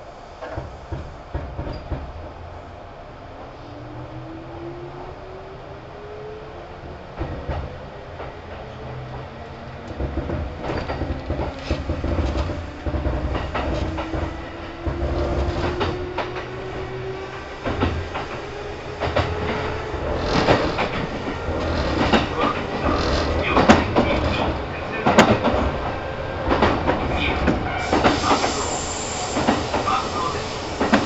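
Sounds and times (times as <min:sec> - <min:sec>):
low train rumble: 0:00.0 - 0:31.0
wheels knocking on rail joints: 0:09.8 - 0:16.6, 0:17.6 - 0:28.4.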